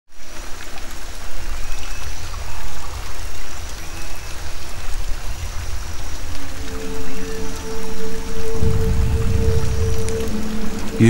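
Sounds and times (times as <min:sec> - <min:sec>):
rain-like water hiss: 0:00.1 - 0:11.0
deep low rumble: 0:03.8 - 0:11.0.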